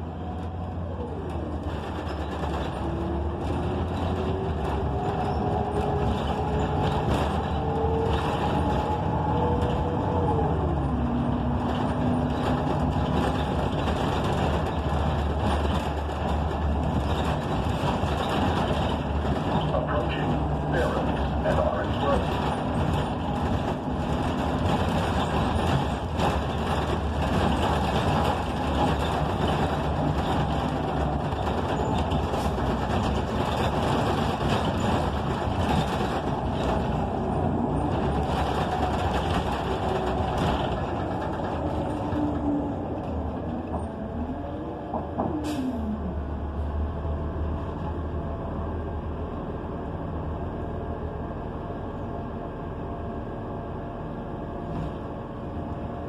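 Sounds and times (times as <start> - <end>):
bus engine and road noise: 0.0 - 56.0.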